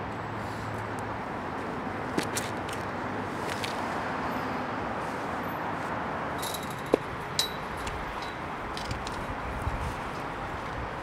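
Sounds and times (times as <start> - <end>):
distant traffic hum: 0.0 - 11.0
sharp metallic clinks: 6.4 - 8.9.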